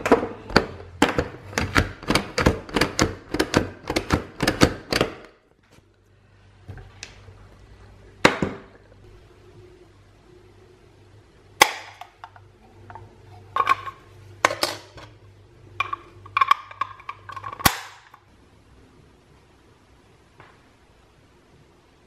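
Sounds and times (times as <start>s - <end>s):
box grater clicks and knocks: 0.5s - 5.3s.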